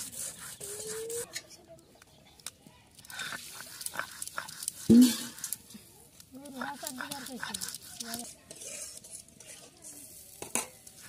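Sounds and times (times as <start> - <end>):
stone roller grinding on slab: 6.5 - 10.5
light scraping and knocking: 7.6 - 10.9.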